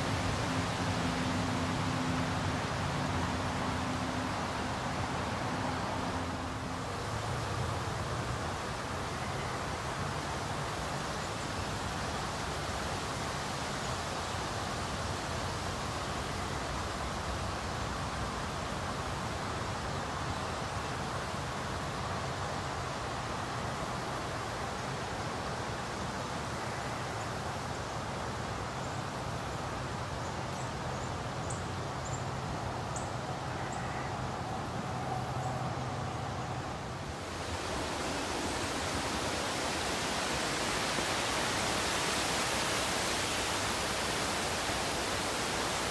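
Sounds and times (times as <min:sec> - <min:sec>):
even hiss: 0:36.7 - 0:45.9.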